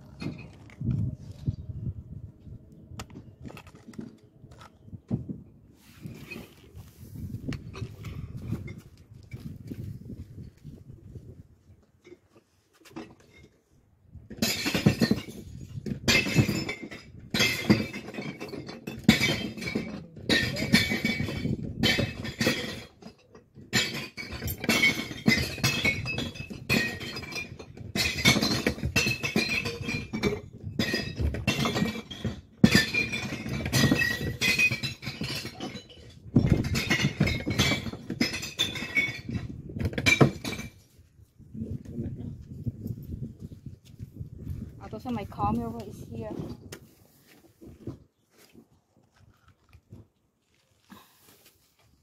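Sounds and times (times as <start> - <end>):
glass bottles smashing in bin: 14.3 - 40.8.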